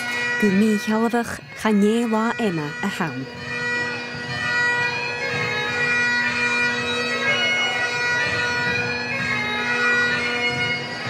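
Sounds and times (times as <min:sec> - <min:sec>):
bagpipe dance tune: 0:00.0 - 0:11.0
bagpipe drones humming: 0:00.0 - 0:11.0.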